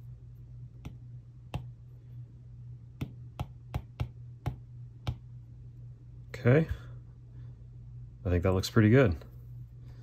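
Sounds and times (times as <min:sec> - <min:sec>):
low hum: 0:00.0 - 0:10.0
stylus tapping on glass screen: 0:03.0 - 0:05.3.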